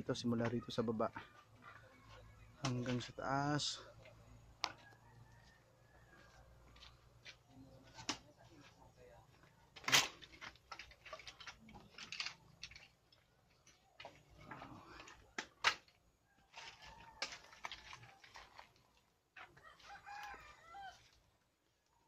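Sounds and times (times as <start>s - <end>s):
rooster crowing: 4.7s - 6.7s, 19.5s - 21.2s
firewood knocking and clattering: 9.4s - 19.6s.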